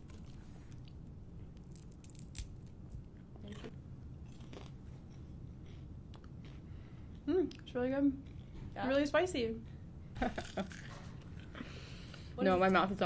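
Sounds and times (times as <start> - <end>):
popcorn crunching: 0.0 - 4.8, 10.4 - 11.6
low room hum: 0.0 - 13.0.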